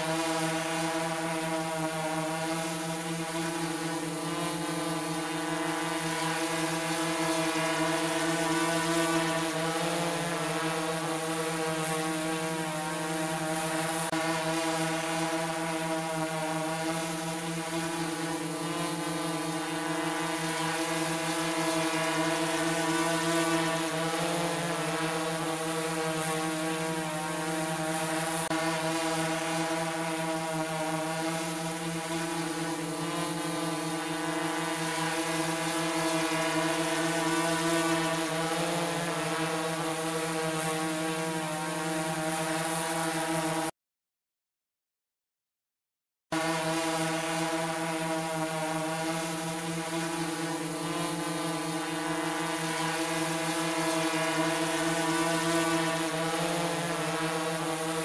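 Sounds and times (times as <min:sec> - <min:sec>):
drone propellers buzzing: 0:00.1 - 0:43.5, 0:46.4 - 0:58.0.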